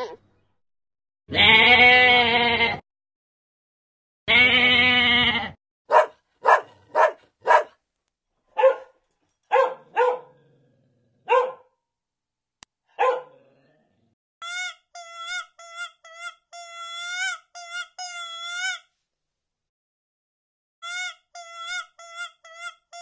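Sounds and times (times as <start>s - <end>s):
long bleat: 1.3s - 2.8s, 4.3s - 5.6s
dog barking: 5.9s - 7.8s, 8.5s - 10.4s, 11.2s - 11.8s, 12.9s - 13.4s
high-pitched squeaky calls: 14.4s - 18.9s, 20.8s - 23.0s.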